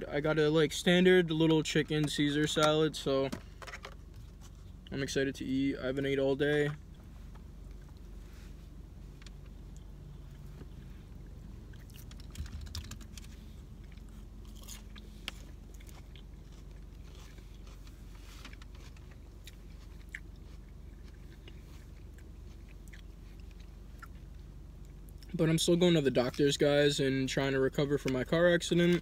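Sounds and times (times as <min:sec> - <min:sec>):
faint low hum: 0:00.0 - 0:29.0
chewing and crunching salad: 0:09.2 - 0:26.6.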